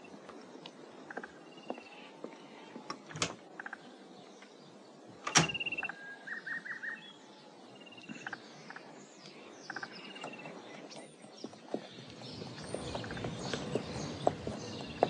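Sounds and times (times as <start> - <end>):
birds chirping and whistling: 5.3 - 15.0.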